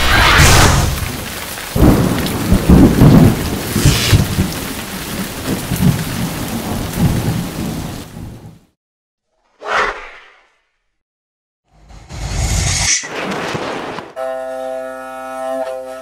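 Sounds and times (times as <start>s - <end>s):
rain hissing: 0.0s - 8.5s
thunder rolling: 0.0s - 8.5s, 13.1s - 14.2s.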